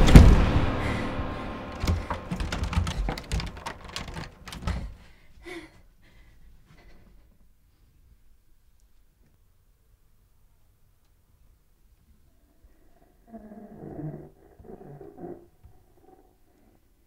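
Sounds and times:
film score music: 0.0 - 5.2
door handle rattling: 1.7 - 5.0.

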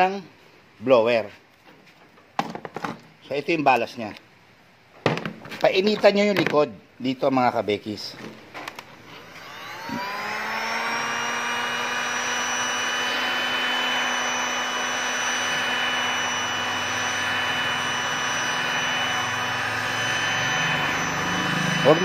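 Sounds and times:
heat gun fan whine: 7.9 - 22.0.

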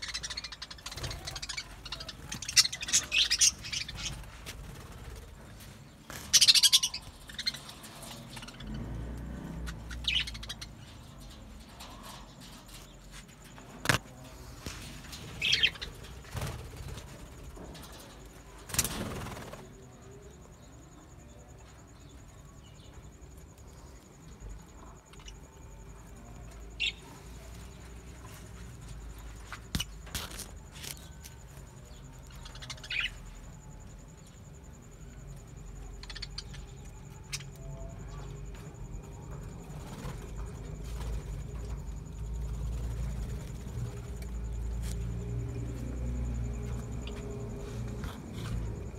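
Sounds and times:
budgerigars chirping: 6.2 - 8.7, 9.6 - 10.8.

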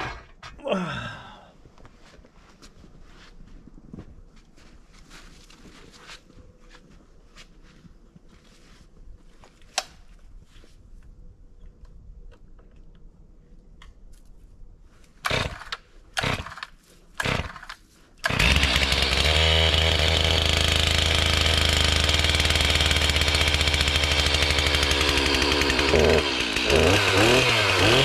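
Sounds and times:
chainsaw pull-start: 0.0 - 0.4, 15.2 - 28.0
chainsaw running: 15.3 - 28.0.

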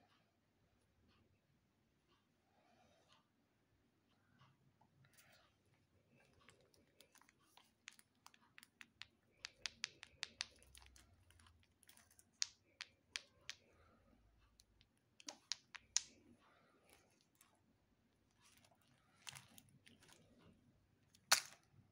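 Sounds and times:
hard candies clicking together: 6.3 - 13.7, 14.5 - 16.3, 21.1 - 21.6.

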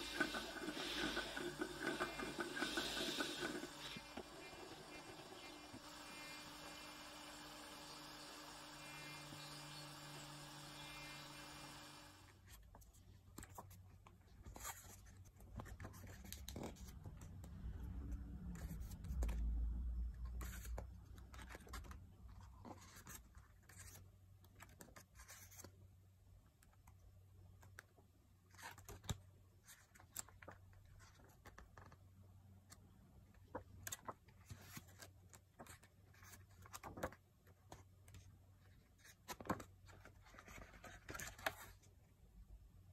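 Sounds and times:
book pages rustling and flicking: 0.0 - 6.4, 12.3 - 19.5, 20.2 - 25.9, 26.6 - 42.0
steady hum: 0.0 - 12.3.

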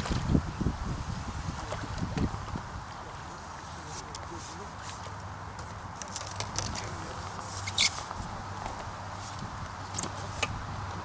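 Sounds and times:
fishing tackle clicking and knocking: 5.6 - 7.0.

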